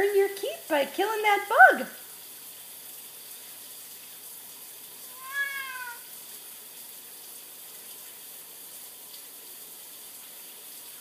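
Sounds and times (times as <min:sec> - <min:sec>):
faint steady hiss: 0:00.0 - 0:11.0
cat meowing: 0:05.1 - 0:06.1.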